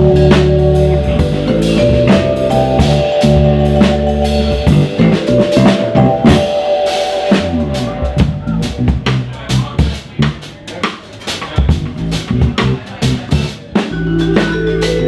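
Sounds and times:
vibraphone notes: 0.0s - 9.2s, 13.7s - 15.0s
electric bass: 0.0s - 10.6s, 11.6s - 15.0s
drum kit beat: 0.0s - 15.0s.

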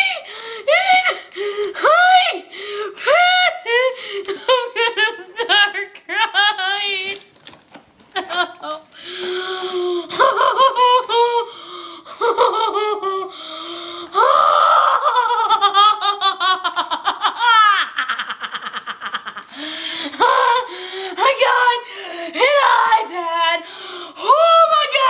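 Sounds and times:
girl laughing: 8.1s - 8.9s, 12.1s - 13.3s, 14.7s - 20.3s.

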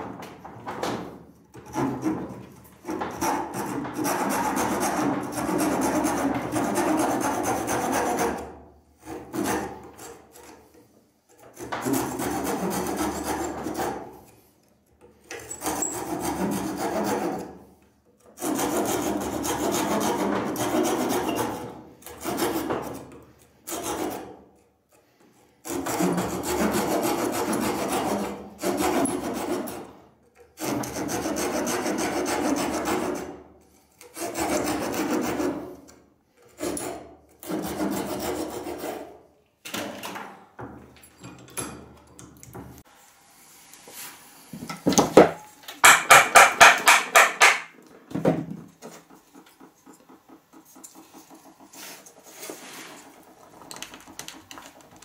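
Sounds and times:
hand saw rasping strokes: 1.5s - 39.4s, 45.8s - 47.8s, 48.7s - 53.6s.

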